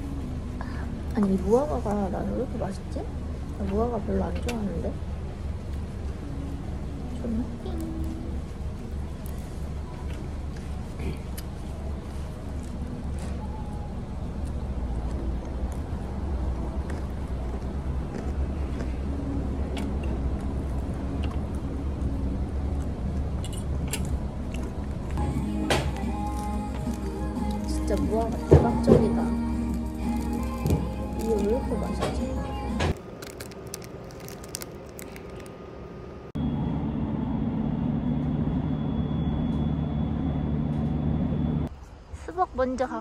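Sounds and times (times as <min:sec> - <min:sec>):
vehicle cabin rumble: 0:00.0 - 0:35.6
paper wrapper rustling: 0:26.0 - 0:28.4, 0:29.7 - 0:32.1, 0:33.0 - 0:35.6
plastic bag crinkling: 0:26.0 - 0:28.5, 0:29.6 - 0:32.2, 0:32.9 - 0:35.7.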